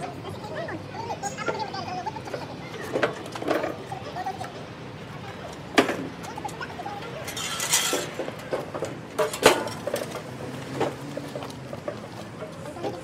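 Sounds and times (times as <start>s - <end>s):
metal clinks and knocks: 7.3s - 12.5s.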